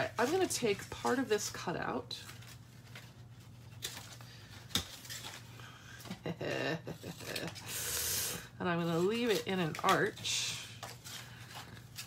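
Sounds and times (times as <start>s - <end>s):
paper handling: 0.0s - 6.2s, 8.8s - 12.0s
low electrical hum: 0.0s - 12.0s.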